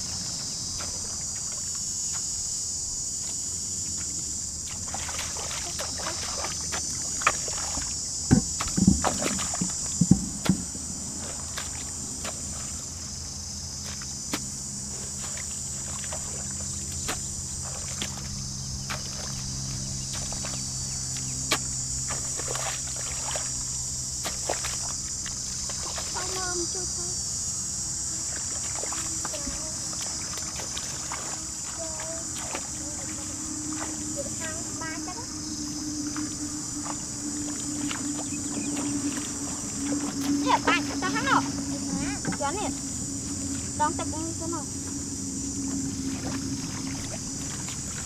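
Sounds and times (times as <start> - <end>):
insects chirring: 0.0 - 48.0
low hum: 0.0 - 48.0.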